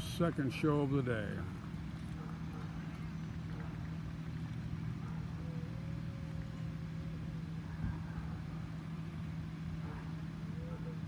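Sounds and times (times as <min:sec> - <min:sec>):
low motor hum: 0:00.0 - 0:11.0.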